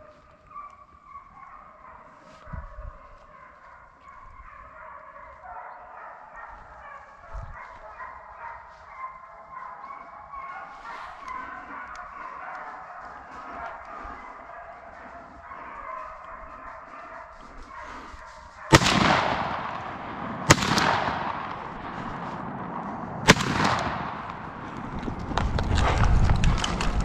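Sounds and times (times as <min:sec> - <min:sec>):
hounds baying: 0:00.0 - 0:24.9
running through dry leaves: 0:06.6 - 0:18.7
shotgun shots echoing: 0:18.7 - 0:25.1.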